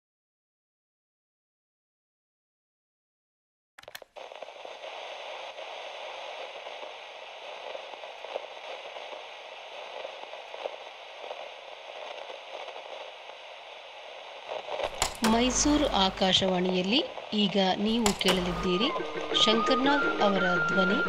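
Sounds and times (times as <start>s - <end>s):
radio static hiss and crackles: 4.0s - 19.7s
radio switch clicks: 14.8s - 16.6s, 17.9s - 18.8s.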